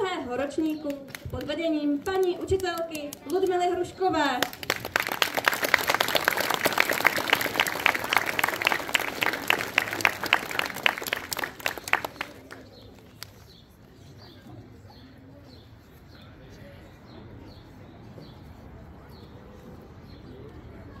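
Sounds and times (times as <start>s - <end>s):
audience clapping: 4.4s - 13.4s.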